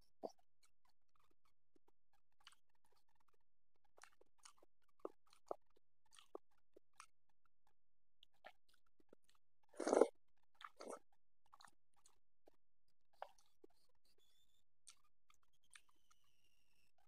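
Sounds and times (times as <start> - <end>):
person chewing food: 2.4 - 3.4, 4.0 - 7.1, 8.2 - 12.6, 13.2 - 13.9, 14.9 - 15.9.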